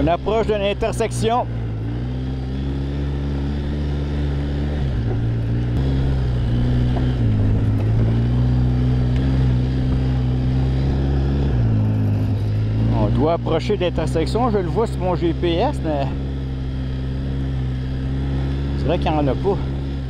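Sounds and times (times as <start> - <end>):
quad bike engine running: 0.0 - 20.0.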